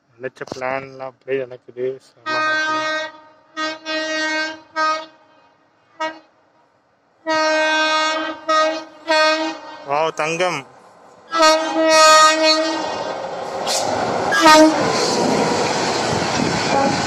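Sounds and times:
electric train horn blasts: 2.2s - 6.3s, 7.2s - 10.0s, 11.3s - 13.0s, 14.3s - 14.8s, 16.7s - 17.0s.

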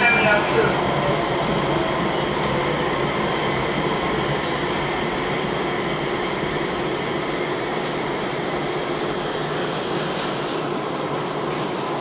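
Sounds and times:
train rolling noise: 0.0s - 12.0s.

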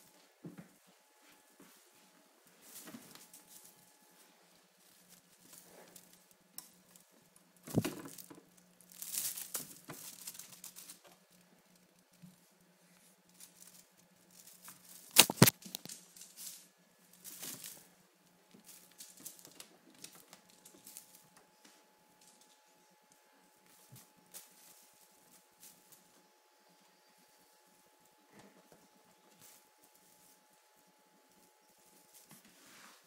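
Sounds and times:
cellophane toy crinkling and rustling: 2.6s - 21.4s, 23.6s - 26.3s, 29.2s - 32.6s.

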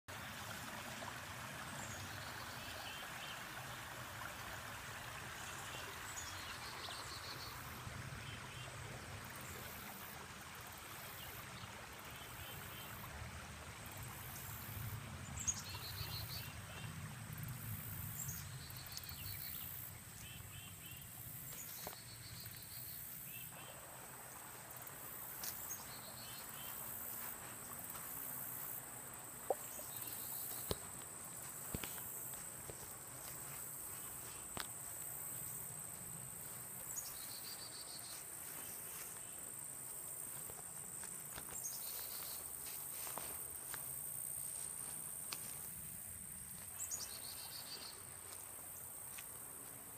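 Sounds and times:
creek trickling: 0.1s - 49.9s
insects buzzing: 17.4s - 49.9s.

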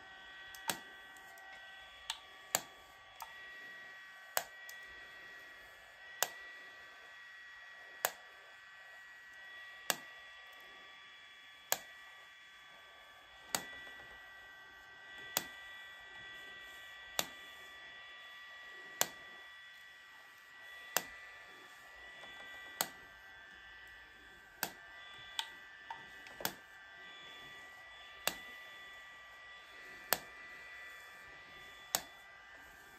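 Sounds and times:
high whine of cooling fan: 0.0s - 32.9s
hair-removal device clicking: 0.5s - 3.4s, 4.3s - 4.9s, 6.2s - 6.4s, 8.0s - 8.4s, 9.8s - 10.6s, 11.6s - 12.0s, 13.4s - 14.2s, 15.1s - 15.7s, 17.1s - 17.7s, 18.8s - 19.5s, 20.6s - 28.7s, 29.8s - 32.9s.

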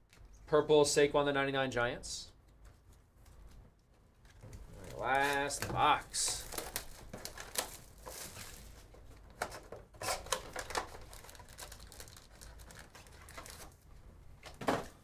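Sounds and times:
crackles: 2.9s - 8.9s, 10.3s - 13.8s
foil packs rustling: 4.4s - 13.8s
plastic wrap tearing and crinkling: 4.4s - 13.8s.

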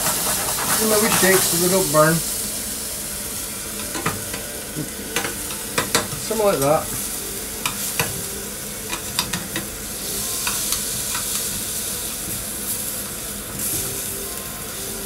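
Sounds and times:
vegetables sizzling in frying pan: 0.0s - 15.0s
metal tongs clicking on pan: 8.9s - 9.7s.

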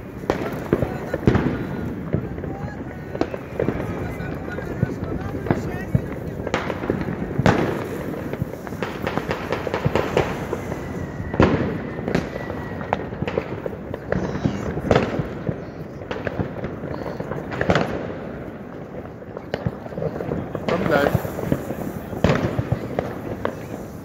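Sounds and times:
fireworks and firecrackers banging: 0.0s - 24.0s
thin high whistle: 10.1s - 13.0s.

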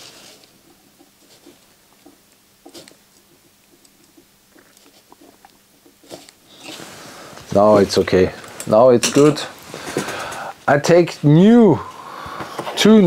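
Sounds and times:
faint steady hum: 0.0s - 13.0s
small clicks and taps desoldering: 0.7s - 6.4s.

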